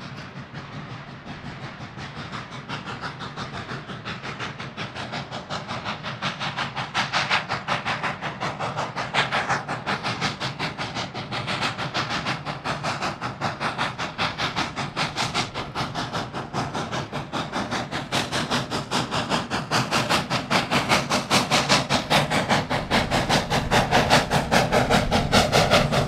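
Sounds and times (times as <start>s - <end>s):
steam hiss: 0.0s - 26.0s
steam locomotive chuffing: 0.0s - 26.0s.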